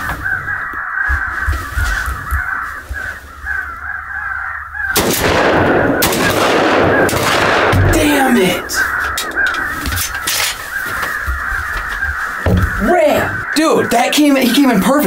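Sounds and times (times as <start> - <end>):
electronic crow caws: 0.0 - 15.0
shotgun shot: 5.0 - 8.0.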